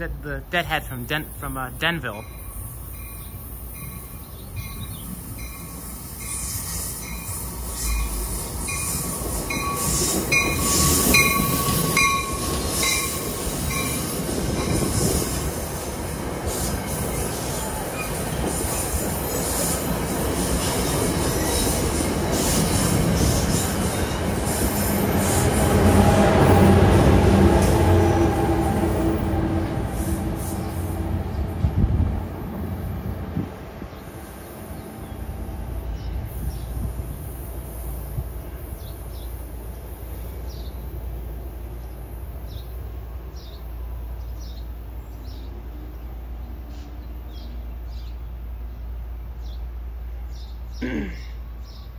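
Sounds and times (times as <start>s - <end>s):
train wheels rumbling and squealing: 0.8s - 45.9s
locomotive whine: 1.7s - 38.8s.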